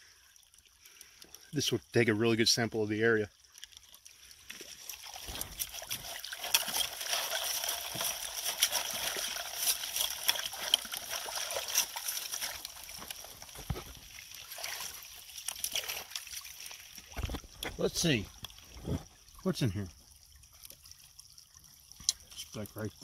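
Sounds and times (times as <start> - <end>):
water splashing through sluice box: 0.0 - 23.0.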